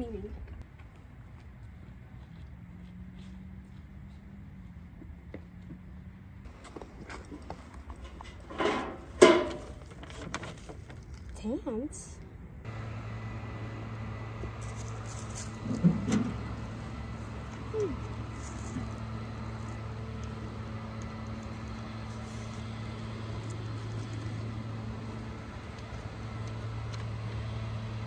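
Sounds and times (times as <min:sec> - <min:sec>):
steady low hum: 0:11.2 - 0:28.0.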